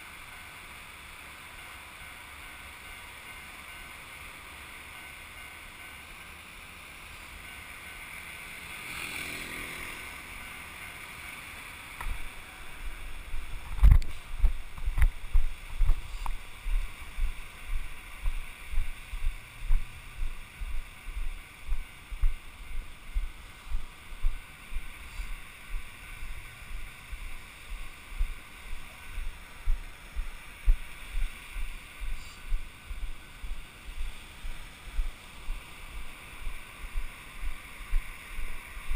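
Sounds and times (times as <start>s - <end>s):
wind: 0.0s - 38.9s
low thumps of footsteps: 12.0s - 38.9s.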